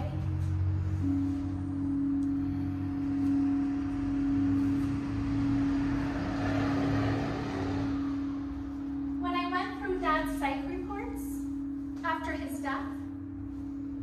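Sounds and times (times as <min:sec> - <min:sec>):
low wavering hum: 0:00.0 - 0:14.0
singing bowl steady tone: 0:00.0 - 0:14.0.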